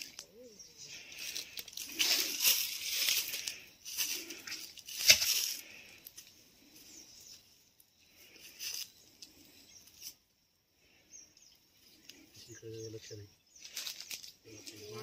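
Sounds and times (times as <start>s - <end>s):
rustling in dry leaves: 0.0s - 7.4s, 13.6s - 15.0s.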